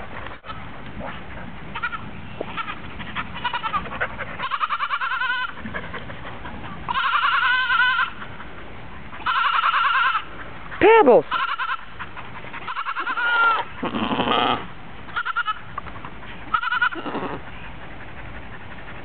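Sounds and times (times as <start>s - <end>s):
goat bleating: 1.7s - 5.6s, 6.9s - 8.2s, 9.2s - 10.3s, 11.3s - 12.0s, 12.6s - 15.7s, 16.5s - 17.4s.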